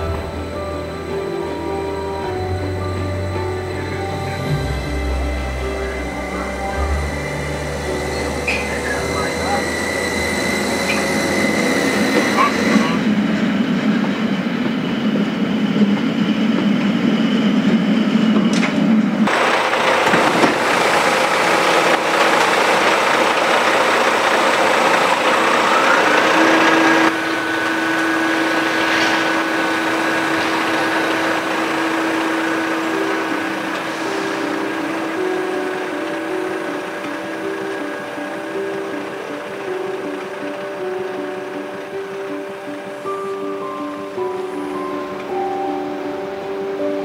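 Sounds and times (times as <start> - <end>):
crane machinery whine: 0.0 - 47.0
train humming: 0.0 - 47.0.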